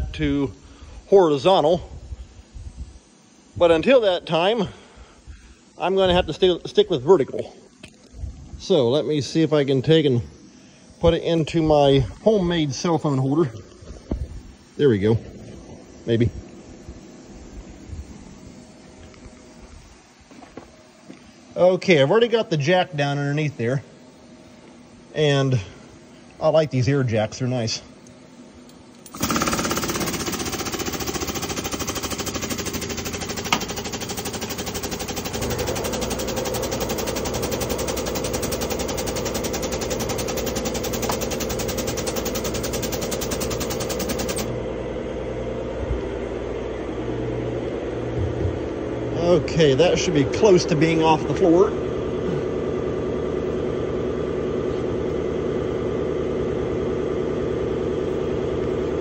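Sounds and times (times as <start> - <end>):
air-driven pump pulsing: 29.0 - 46.2.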